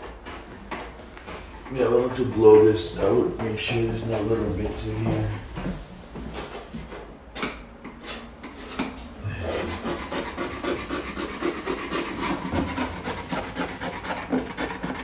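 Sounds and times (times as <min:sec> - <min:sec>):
hand tool scraping wood: 0:07.8 - 0:15.0.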